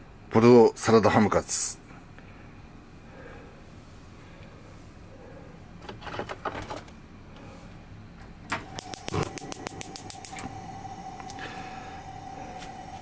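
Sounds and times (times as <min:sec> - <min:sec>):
gas burner hissing: 0:08.4 - 0:13.0
gas stove clicks: 0:08.5 - 0:10.6
spark igniter ticking rapidly: 0:08.5 - 0:11.4
faint steady tone: 0:08.7 - 0:13.0.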